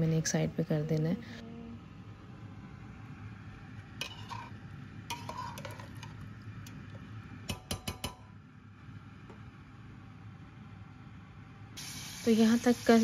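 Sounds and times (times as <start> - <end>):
metal spoon clinking on pot: 4.0 - 6.2, 7.5 - 8.4.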